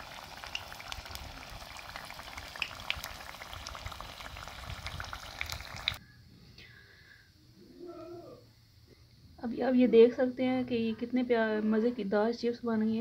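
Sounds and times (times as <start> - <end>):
food deep-frying in hot oil: 0.0 - 6.0.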